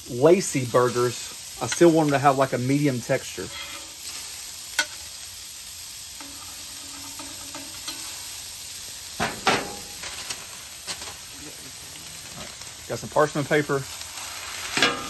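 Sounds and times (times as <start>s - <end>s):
meat sizzling on griddle: 0.0s - 15.0s
metal spatula scraping griddle: 3.5s - 5.0s, 6.2s - 8.4s, 14.4s - 15.0s.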